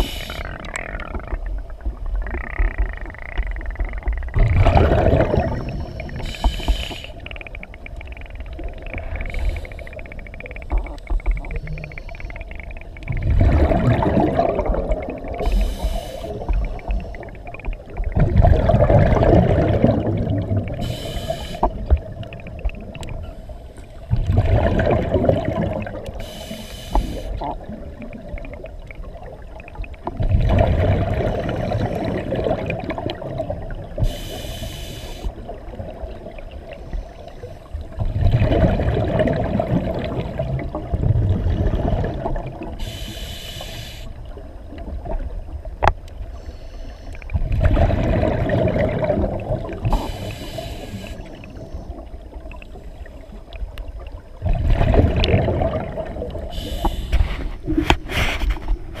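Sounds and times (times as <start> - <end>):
hissing regulator inhales: 0.0 - 0.5, 5.7 - 7.2, 15.4 - 17.3, 20.8 - 21.8, 26.2 - 27.4, 34.0 - 35.4, 42.8 - 44.2, 49.9 - 51.9, 56.5 - 57.5
bubbling exhaled air underwater: 0.0 - 46.0, 47.1 - 59.0.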